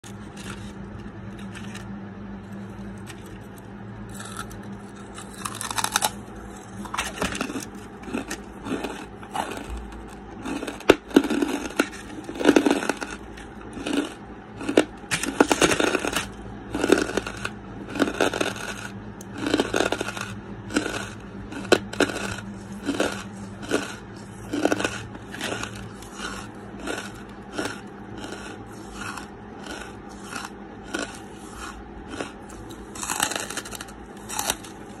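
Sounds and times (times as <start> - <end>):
charcoal being chewed: 0.0 - 35.0.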